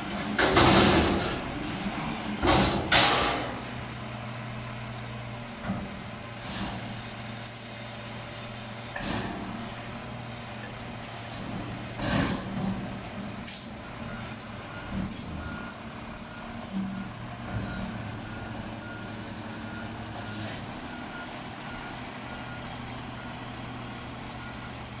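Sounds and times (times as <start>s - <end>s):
diesel engine running: 0.0s - 25.0s
sharp knocks and clanks: 0.2s - 1.5s, 2.4s - 3.6s.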